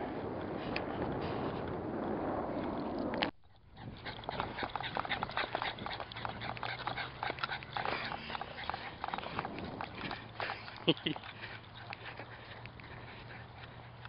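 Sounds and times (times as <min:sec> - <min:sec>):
dog breathing: 0:03.4 - 0:14.0.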